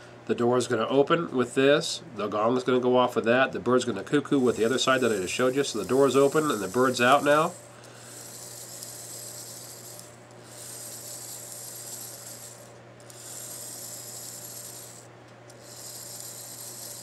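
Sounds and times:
clock mechanism whirring: 4.3 - 17.0.

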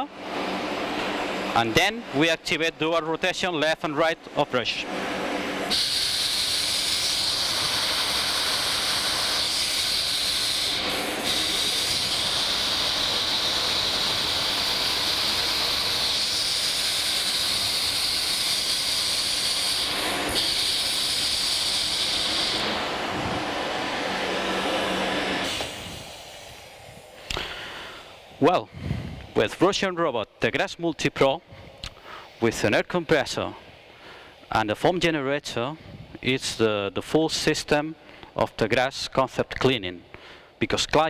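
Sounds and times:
pneumatic motor hissing: 4.9 - 29.4.

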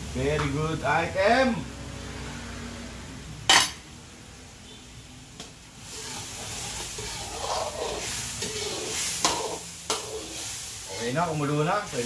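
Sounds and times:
sauce bubbling in a wok: 2.8 - 12.0
ladle stirring and scraping: 5.8 - 12.0.

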